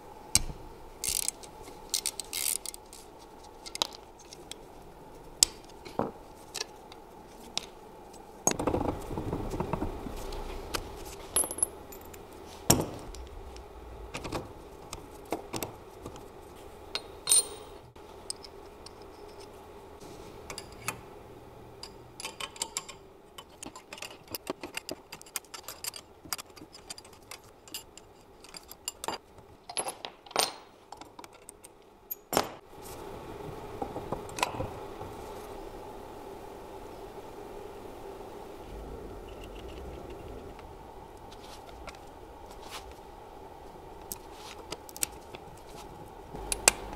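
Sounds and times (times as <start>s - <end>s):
metal tools clinking: 16.9s - 19.5s.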